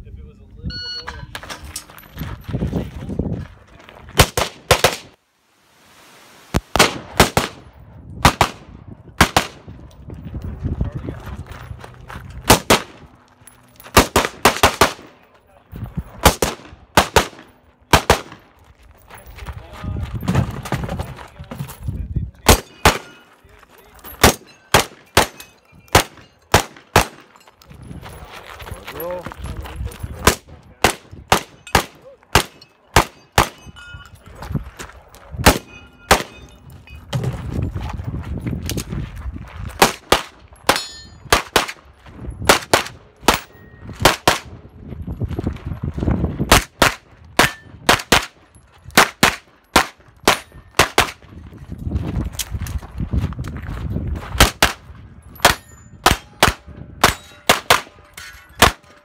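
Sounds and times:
short metallic pings: 0.7 - 1.3.

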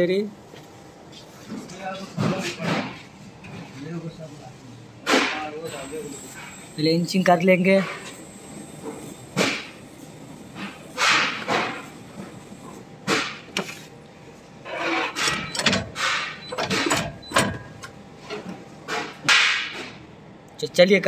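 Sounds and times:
dough thumping and scraping in machine: 10.6 - 12.3, 13.0 - 13.9, 14.8 - 20.0.

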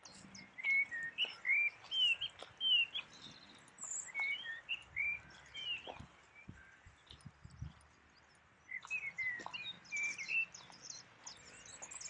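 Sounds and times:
faint high bird chirps: 0.0 - 12.0
songbird whistling: 0.1 - 6.7, 8.7 - 11.0.

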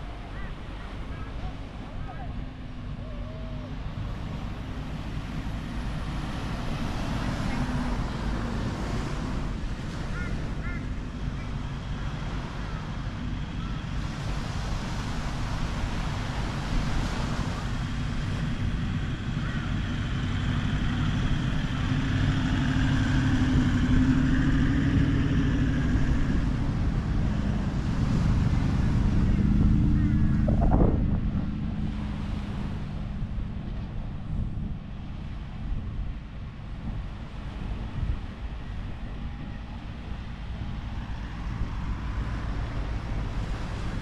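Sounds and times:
vehicle engine passing: 15.9 - 35.7
low rumble: 18.0 - 38.2.

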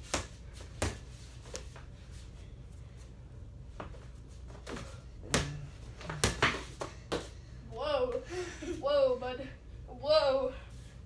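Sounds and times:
steady low hum: 0.0 - 11.0
basketball bouncing: 5.3 - 7.3.

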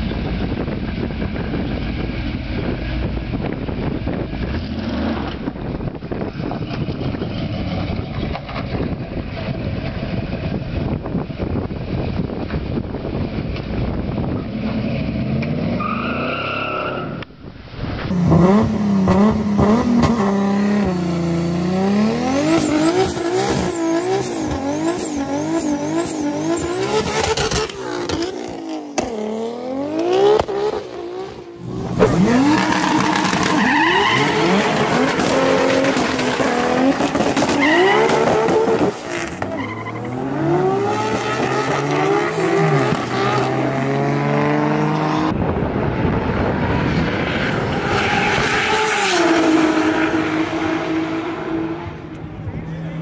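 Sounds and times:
car engines revving: 0.0 - 17.3, 18.0 - 53.0
tyre squeal: 15.8 - 17.2, 37.4 - 40.3.

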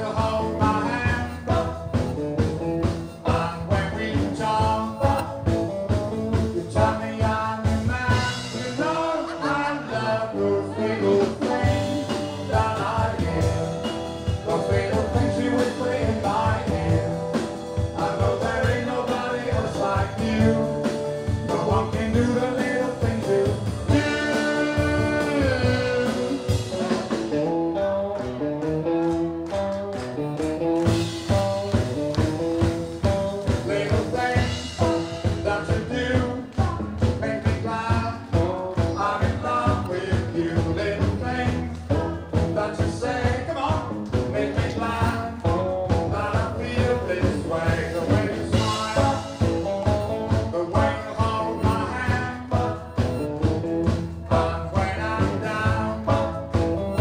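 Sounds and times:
man singing into microphone: 0.0 - 2.2, 3.2 - 27.2, 33.4 - 53.3, 54.2 - 57.0
electric guitars: 0.0 - 57.0
steady beat: 0.1 - 10.0, 30.4 - 57.0.

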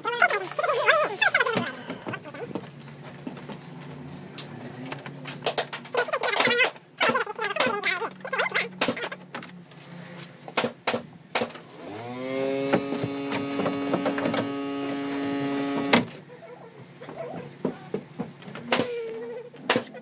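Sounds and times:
plastic panels clicking and knocking: 12.7 - 14.5.

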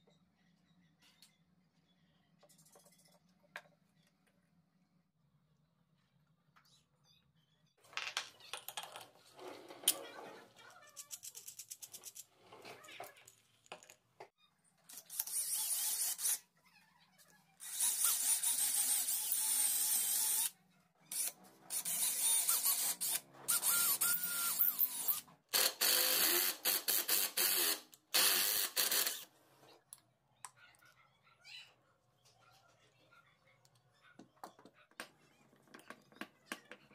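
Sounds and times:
electric drill boring into wood: 21.2 - 29.2.

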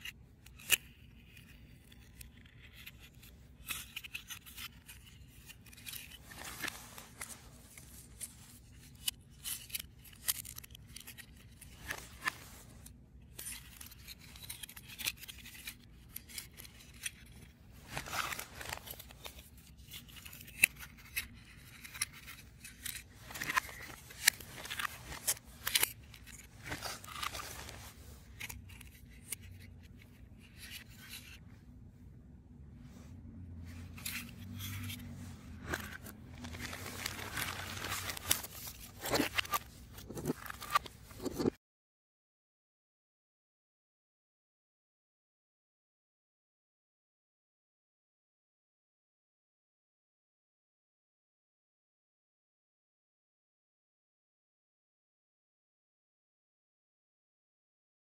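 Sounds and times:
stiff paper scraping: 33.8 - 41.5.

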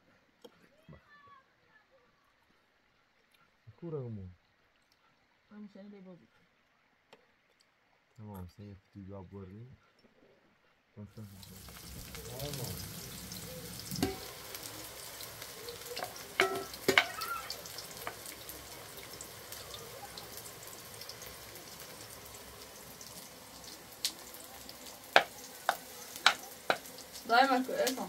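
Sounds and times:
eggplant sizzling in oil: 11.2 - 28.0
clicks and knocks in pan: 13.9 - 14.3, 16.0 - 17.2.

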